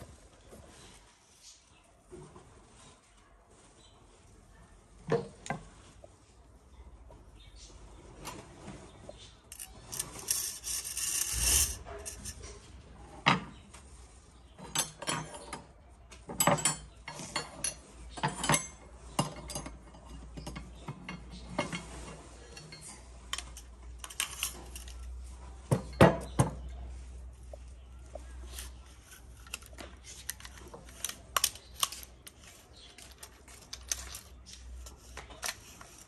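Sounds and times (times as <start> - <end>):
metal parts scraping and sliding: 9.2 - 12.7, 21.3 - 26.3, 28.2 - 36.0.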